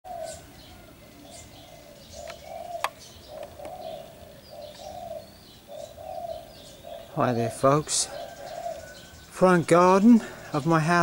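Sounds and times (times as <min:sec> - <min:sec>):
dove cooing: 0:00.1 - 0:09.3
small birds chirping: 0:00.1 - 0:11.0.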